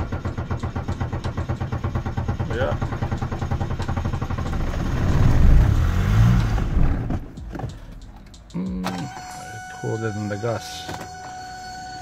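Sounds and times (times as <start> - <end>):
diesel engine running: 0.0 - 9.2.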